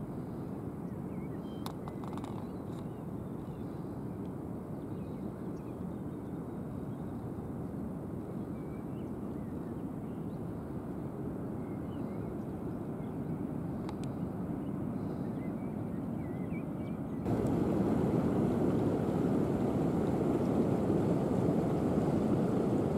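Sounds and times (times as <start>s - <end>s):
faint bird chirps: 0.8s - 7.2s, 11.5s - 17.2s
distant surf: 17.3s - 22.9s
wind rumble: 17.3s - 22.9s.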